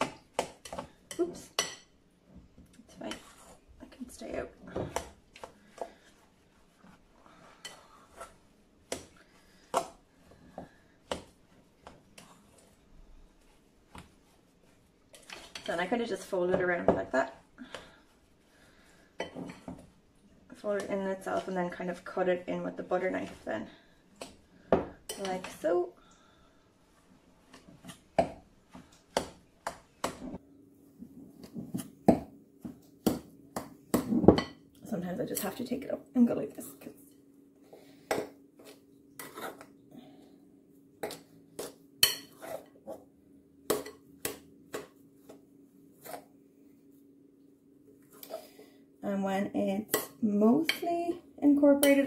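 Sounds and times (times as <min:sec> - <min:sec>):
knife scraping glass bowl: 0:39.2 - 0:39.7, 0:42.0 - 0:43.0.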